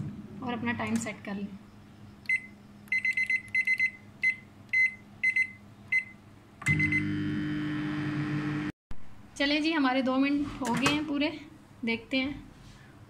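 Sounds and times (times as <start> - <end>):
microwave oven humming: 1.6 - 8.7
microwave dial beeping: 2.3 - 7.6.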